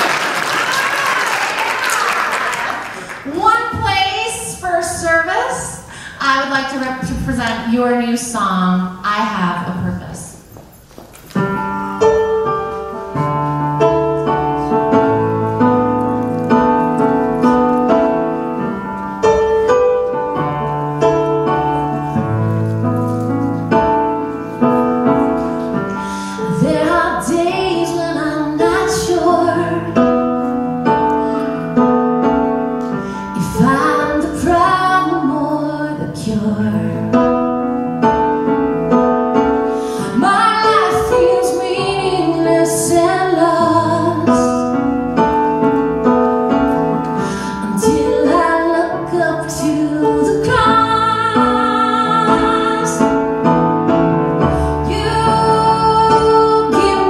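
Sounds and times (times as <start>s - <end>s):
piano chords on keyboard: 11.4s - 57.0s
woman singing: 26.4s - 30.0s, 33.4s - 37.2s, 40.1s - 44.6s, 47.6s - 53.3s, 54.8s - 57.0s.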